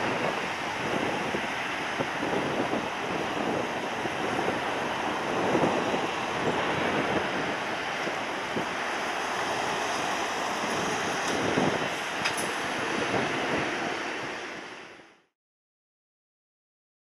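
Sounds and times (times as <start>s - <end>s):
jet engines roaring: 0.0s - 15.1s
wind rumble on microphone: 0.0s - 15.2s.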